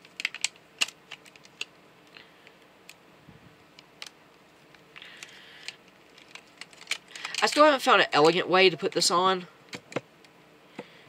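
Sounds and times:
plastic toy clicks and rattles: 0.0 - 1.7, 5.0 - 8.4.

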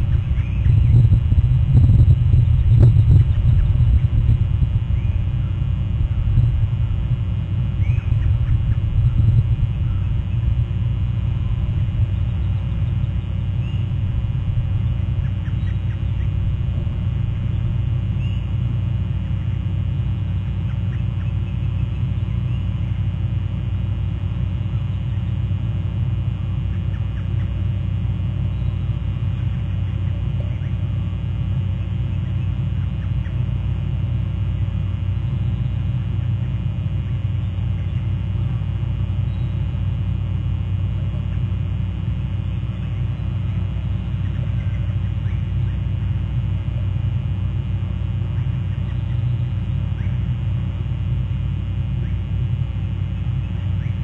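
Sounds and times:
oystercatcher calls: 0.0 - 1.1, 7.8 - 10.4, 15.2 - 16.2
low rumble: 0.0 - 26.7.

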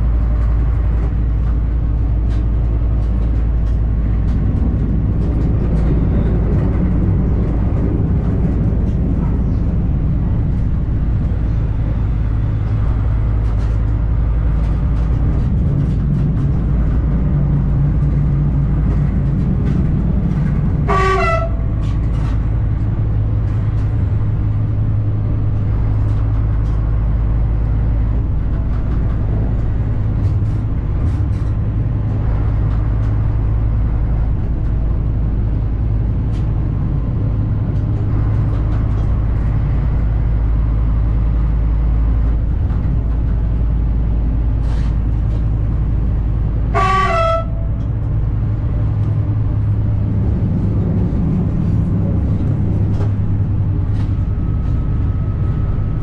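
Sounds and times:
railcar engine drone: 0.0 - 56.0
train horn toot: 20.8 - 22.0, 46.7 - 47.8.

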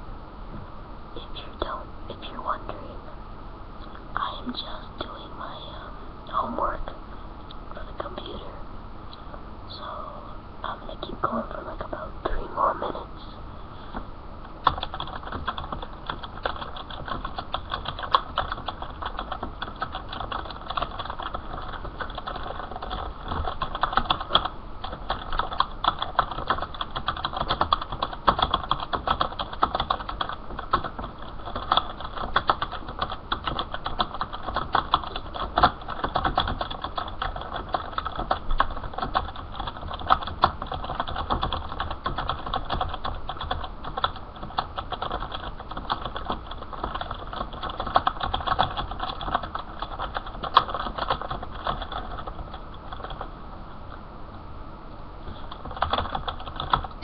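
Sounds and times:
rapid keyboard typing: 14.6 - 53.3, 55.3 - 57.0.

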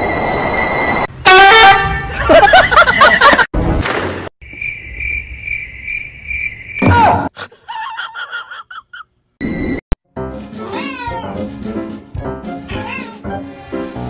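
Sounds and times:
cricket chirping: 4.4 - 6.8.

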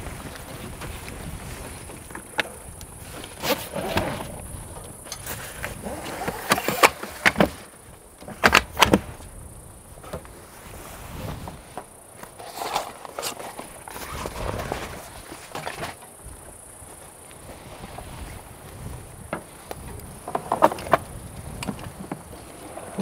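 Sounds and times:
clacks and knocks of tent hardware: 0.0 - 9.3, 11.4 - 16.5, 19.2 - 23.0.

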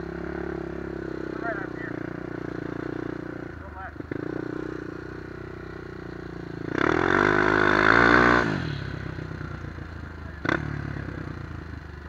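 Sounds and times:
quad bike engine revving: 0.0 - 12.0.

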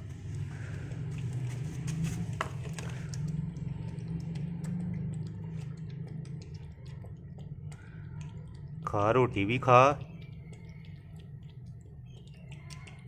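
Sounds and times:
steady low rumble: 0.0 - 12.9
puppy licking a plate: 0.0 - 13.0.

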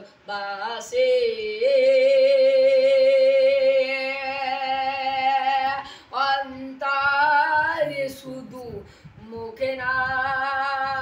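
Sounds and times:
boy singing unaccompanied: 0.0 - 11.0.

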